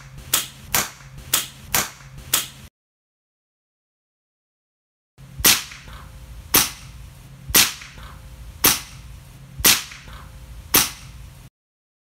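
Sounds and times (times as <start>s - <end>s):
air rifle shots with echo: 5.4s - 6.9s, 7.5s - 9.0s, 9.6s - 11.1s.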